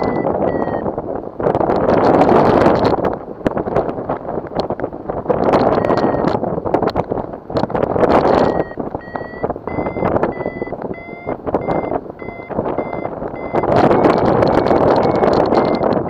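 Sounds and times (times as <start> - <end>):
variometer high beeps: 0.0 - 0.9, 5.7 - 6.4, 8.3 - 16.0
wind noise on microphone: 0.0 - 16.0.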